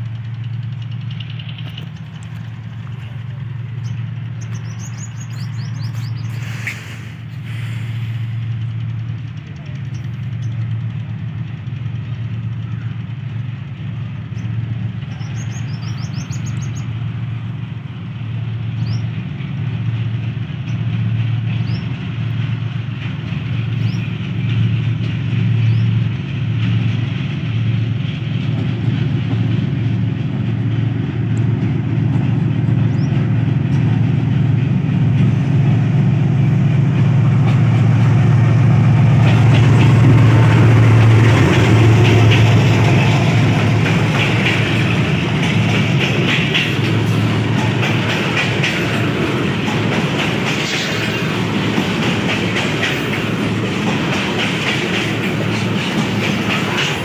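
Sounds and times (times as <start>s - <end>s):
locomotive engine drone: 0.0s - 57.0s
birds chirping: 1.0s - 6.8s, 14.3s - 17.1s, 32.7s - 33.8s.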